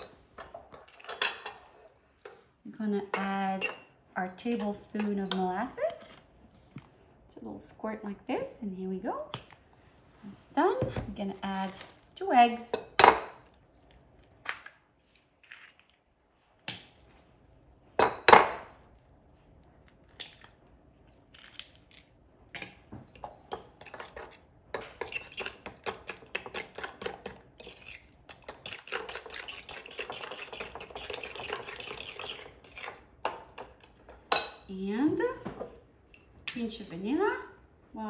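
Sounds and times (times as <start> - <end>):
fork beating eggs in bowl: 23.1 - 34.3.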